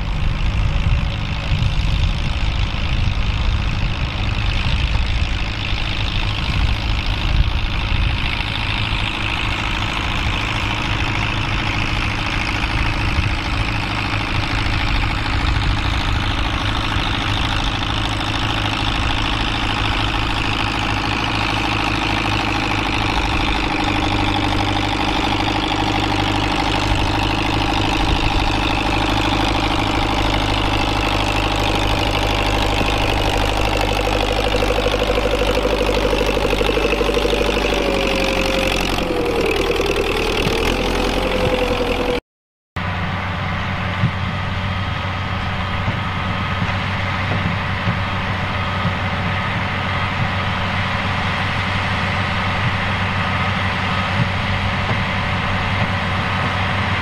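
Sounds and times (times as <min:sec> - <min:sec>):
higher engine tone: 0:00.0 - 0:42.2
tractor diesel engine running: 0:00.0 - 0:42.2, 0:42.8 - 0:57.0.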